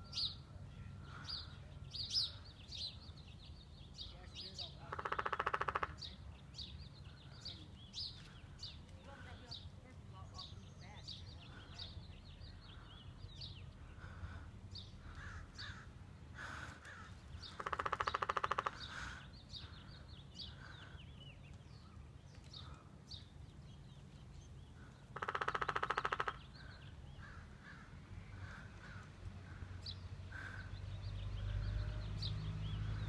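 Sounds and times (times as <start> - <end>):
birds chirping: 0.0 - 33.0
woodpecker drumming: 4.9 - 6.1, 17.5 - 19.2, 25.1 - 26.5.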